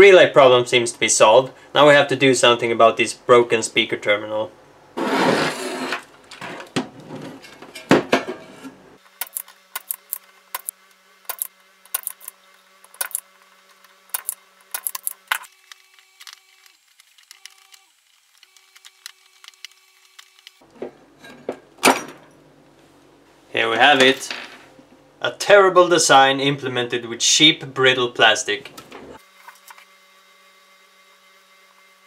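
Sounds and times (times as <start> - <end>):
circuit board handling: 9.2 - 10.7, 11.3 - 17.8
soldering tools clicking: 9.2 - 10.7.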